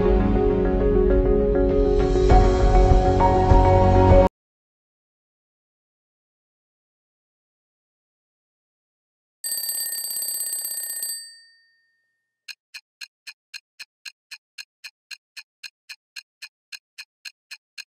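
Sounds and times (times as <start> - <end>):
twin-bell alarm clock ringing: 9.4 - 12.1
clock ticking: 12.5 - 18.0.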